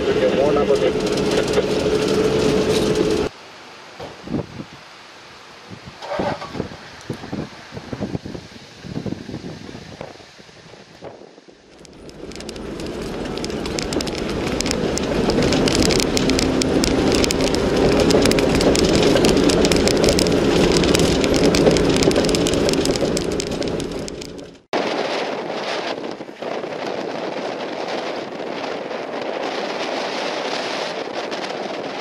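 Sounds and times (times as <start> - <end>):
rattling on rough dirt road: 0.0 - 3.3, 6.0 - 6.7, 11.0 - 32.0
vehicle engine running: 0.0 - 3.3, 11.7 - 24.7.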